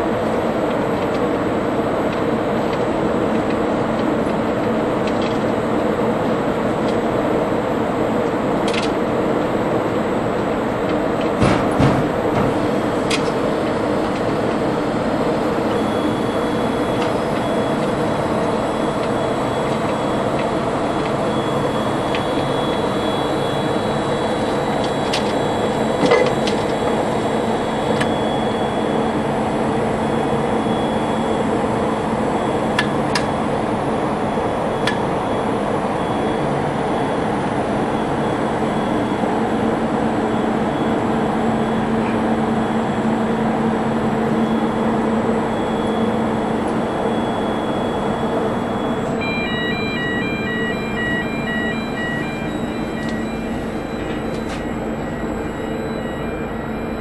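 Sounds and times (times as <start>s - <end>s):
machinery hum: 0.0s - 57.0s.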